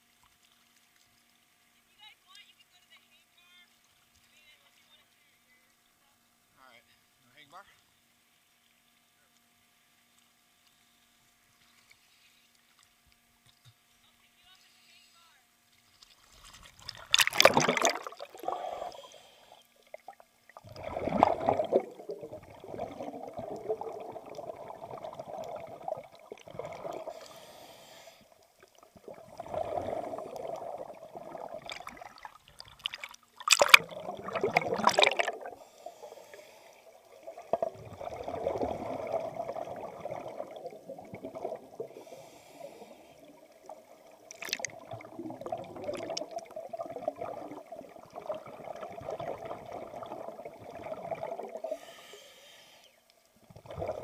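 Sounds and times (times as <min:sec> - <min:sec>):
rush of bubbles: 0:16.6 - 0:27.5, 0:28.3 - 0:52.0, 0:53.5 - 0:54.0
diver breathing through regulator: 0:17.8 - 0:19.7, 0:26.5 - 0:28.4, 0:33.9 - 0:37.1, 0:41.7 - 0:43.5, 0:51.5 - 0:53.0.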